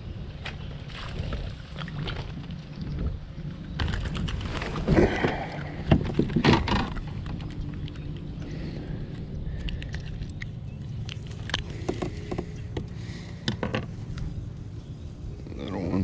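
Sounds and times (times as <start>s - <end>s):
steady low rumble: 0.0s - 16.0s
knocks and rattles on kayak: 3.8s - 7.9s, 11.6s - 14.0s.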